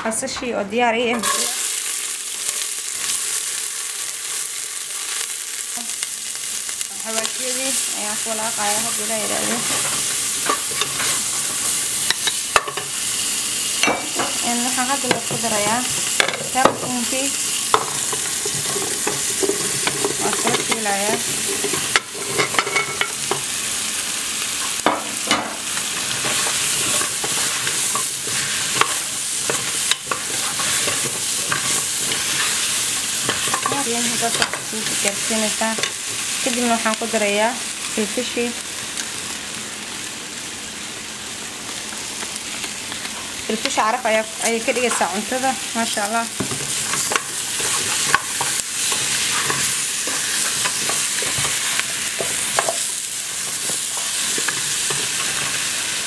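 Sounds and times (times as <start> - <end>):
onion sizzling in oil: 0.1 - 56.0
wooden spoon scraping a pot: 26.0 - 35.2, 46.4 - 52.8.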